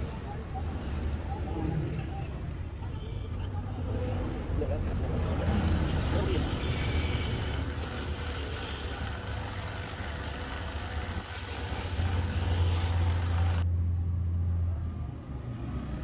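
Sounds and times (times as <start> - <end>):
buffing tool grinding rubber: 7.2 - 13.6.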